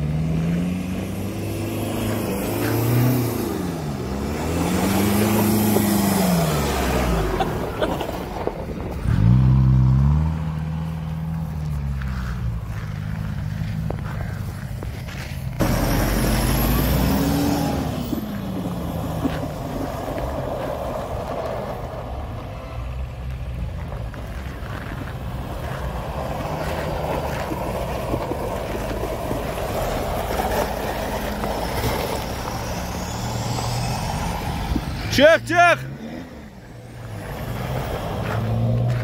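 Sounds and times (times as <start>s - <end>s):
car engine running: 10.8s - 22.0s.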